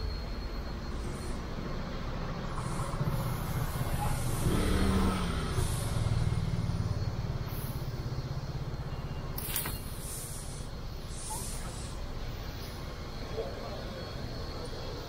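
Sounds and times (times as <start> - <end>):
street traffic rumble: 0.0 - 15.0
motor scooter engine humming: 3.5 - 9.1.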